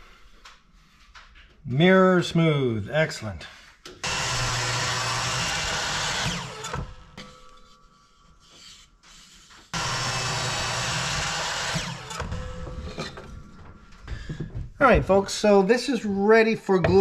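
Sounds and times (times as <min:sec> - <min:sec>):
electric saw cutting wood: 0:04.0 - 0:07.3, 0:09.7 - 0:13.4.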